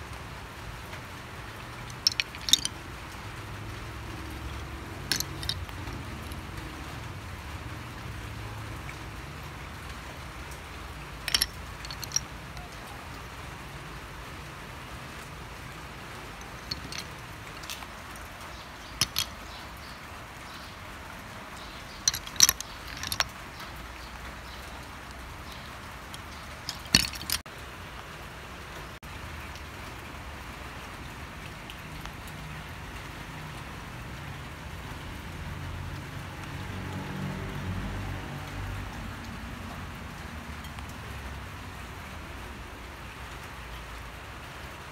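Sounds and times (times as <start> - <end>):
fork clicking on shells: 5.1 - 6.3, 11.3 - 12.2, 19.0 - 19.4, 22.0 - 23.3, 26.2 - 27.4.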